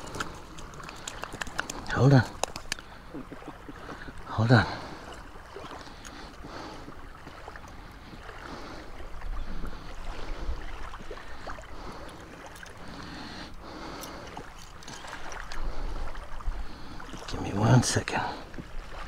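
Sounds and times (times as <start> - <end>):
faint clicks: 0.0 - 3.0
small waves washing ashore: 0.0 - 19.0.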